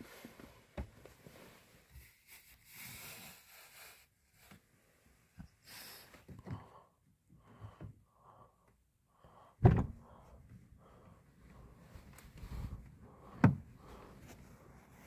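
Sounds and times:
loud thunk: 9.6 - 10.0
soft rustling: 11.5 - 15.0.

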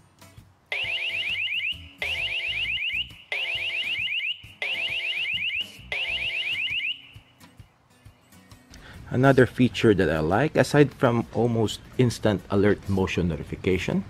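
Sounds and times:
siren chirping: 0.7 - 7.3.

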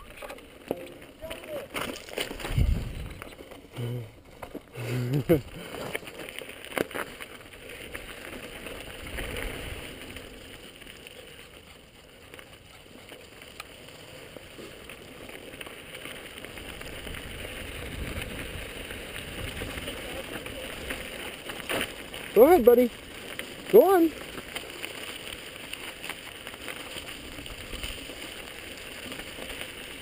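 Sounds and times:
bike clicks and knocks: 0.0 - 2.6
bike tyres on loose gravel: 0.0 - 30.0
wind on microphone: 2.4 - 3.2.

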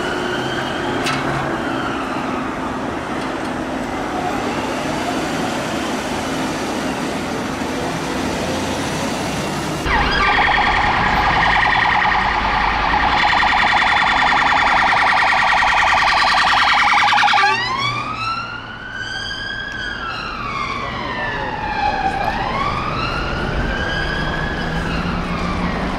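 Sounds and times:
road traffic: 0.0 - 25.9
police siren: 9.8 - 25.9.

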